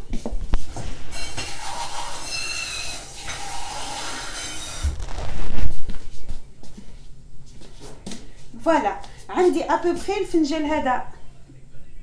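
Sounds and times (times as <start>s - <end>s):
low thuds and bumps: 4.8s - 6.2s.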